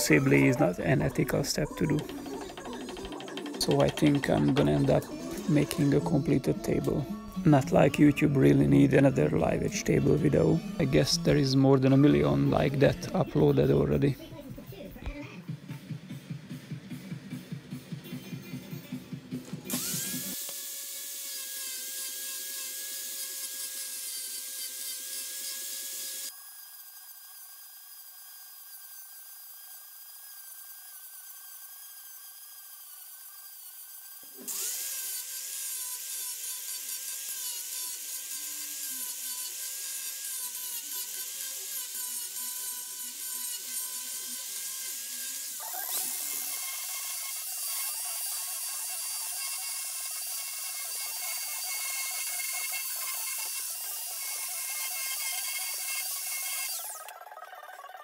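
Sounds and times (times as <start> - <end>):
belt sander sanding: 0.0 - 14.0, 29.3 - 57.0
angle grinder sanding wood: 0.0 - 14.3, 19.7 - 57.1.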